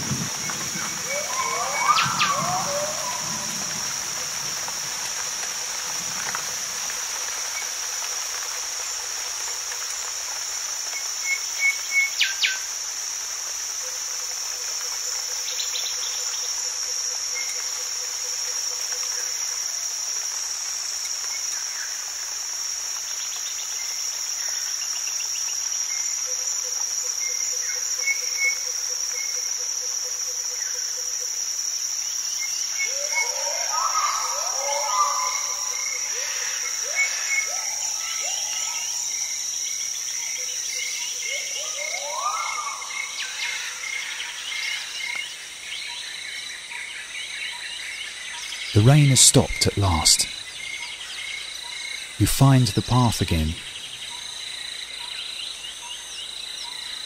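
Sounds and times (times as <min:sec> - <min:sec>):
frogs calling: 0:00.0 - 0:57.0
insects chirping: 0:00.0 - 0:57.0
bird chirps: 0:01.0 - 0:03.4.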